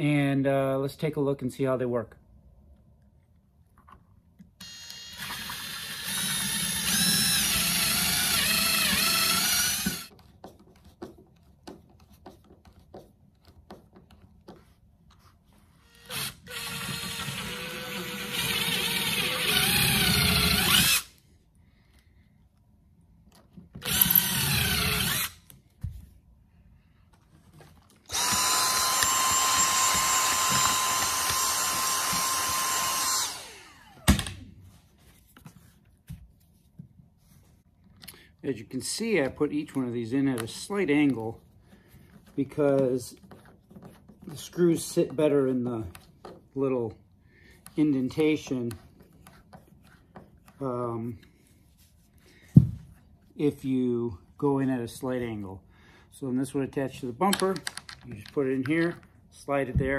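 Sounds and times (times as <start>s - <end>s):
power drill whining: 4.6s - 10.1s, 15.8s - 21.2s, 23.8s - 25.4s, 28.0s - 34.4s.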